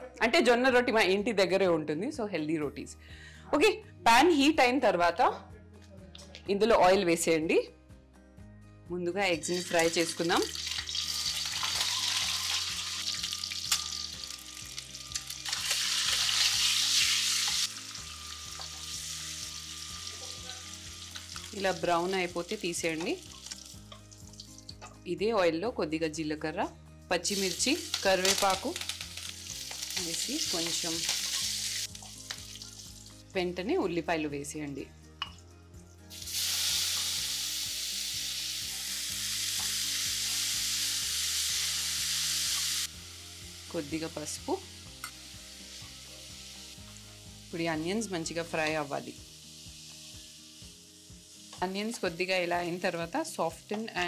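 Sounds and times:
eggs sizzling in hot oil: 9.3 - 25.0, 27.2 - 33.7, 35.2 - 54.0.

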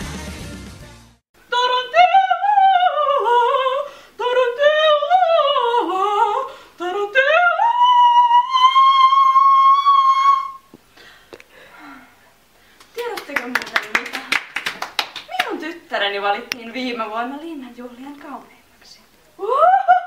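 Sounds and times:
woman singing unaccompanied: 1.4 - 10.7.

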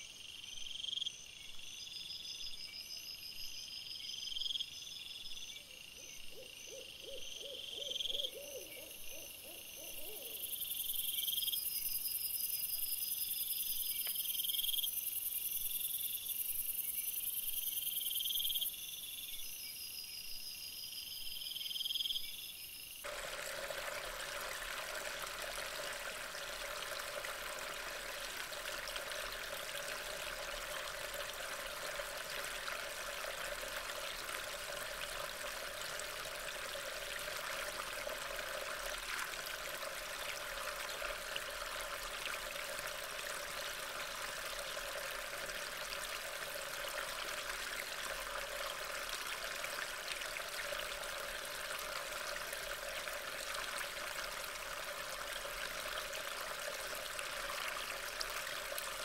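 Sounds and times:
night insects chirping: 0.0 - 52.8
steady rush of rain: 23.0 - 59.0.

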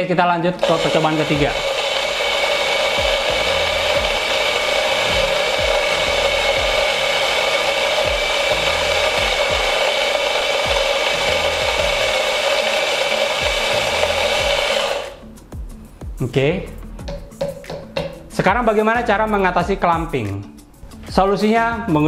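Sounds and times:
coffee grinder whirring: 0.6 - 15.2.

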